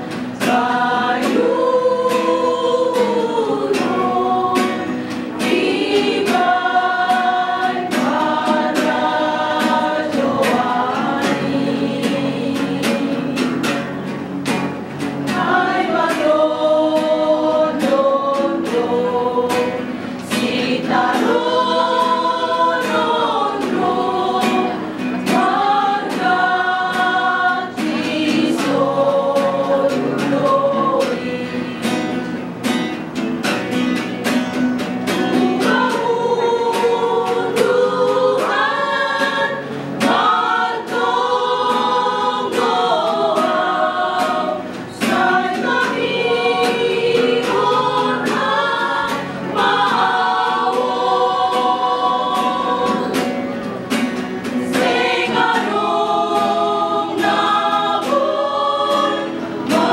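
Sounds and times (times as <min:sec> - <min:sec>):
women's vocal group singing a hymn: 0:00.0 - 0:32.8, 0:34.8 - 0:59.9.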